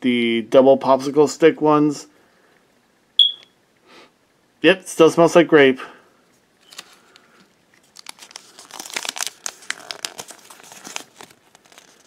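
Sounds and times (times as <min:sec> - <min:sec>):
plastic packaging crinkling: 0:06.6 - 0:12.0.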